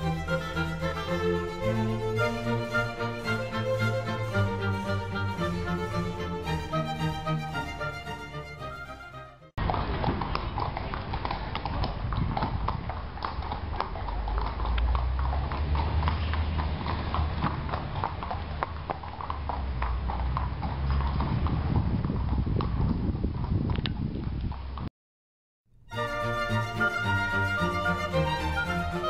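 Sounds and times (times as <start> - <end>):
horse hooves clip-clopping: 9.6 - 24.9.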